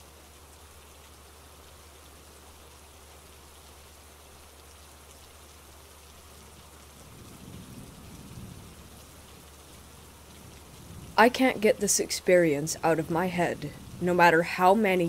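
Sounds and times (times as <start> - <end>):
steady rain: 0.0 - 15.0
thunder rumbling: 7.0 - 9.2, 10.3 - 15.0.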